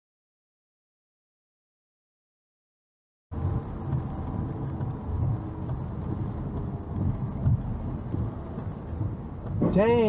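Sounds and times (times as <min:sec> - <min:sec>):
car driving on wet road: 0:03.3 - 0:10.0.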